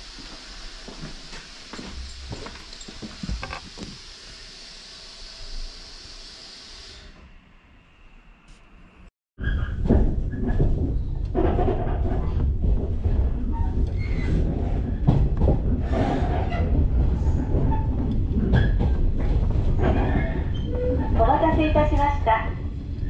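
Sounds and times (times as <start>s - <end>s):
train wheels rumbling on rail: 9.4s - 23.0s
track knocks and clacks: 9.8s - 22.4s.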